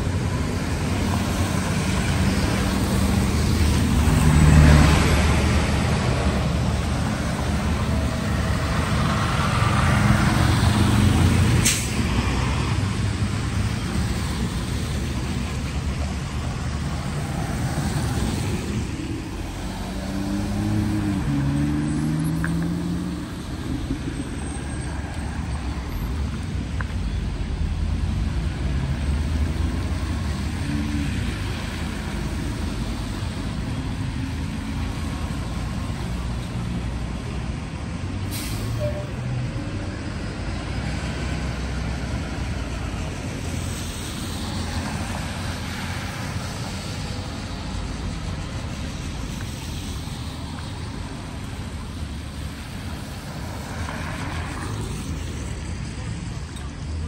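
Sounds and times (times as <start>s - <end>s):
bus engine rumble: 0.0s - 57.0s
car tyres hissing on wet road: 0.5s - 26.5s, 38.2s - 39.1s, 40.6s - 56.5s
air brake hiss: 11.6s - 12.0s, 38.2s - 39.1s.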